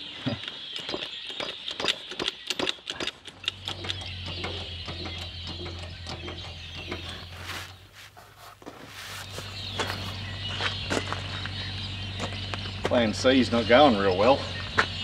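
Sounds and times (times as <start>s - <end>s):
steady low hum: 3.7s - 15.0s.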